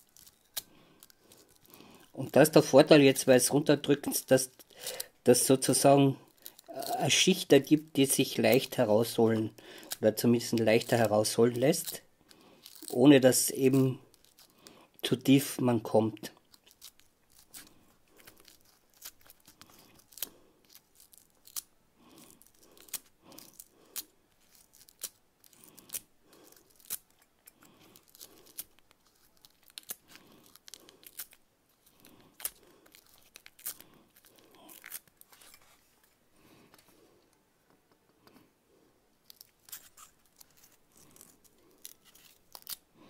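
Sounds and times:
small sharp crackles and clicks: 0.0s - 2.1s, 16.2s - 35.5s, 39.2s - 42.8s
knife scraping foam: 39.3s - 42.8s.

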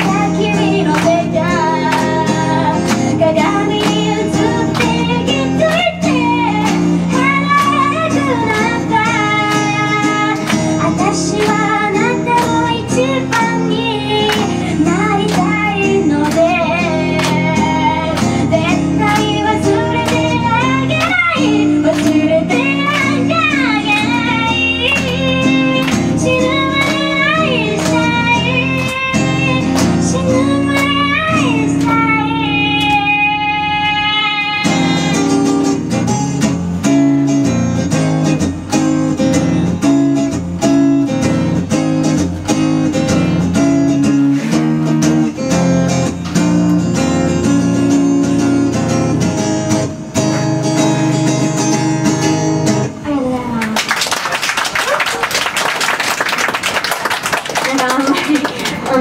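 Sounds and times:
woman singing into a microphone: 0.0s - 35.8s
acoustic guitar strumming: 0.0s - 53.6s.

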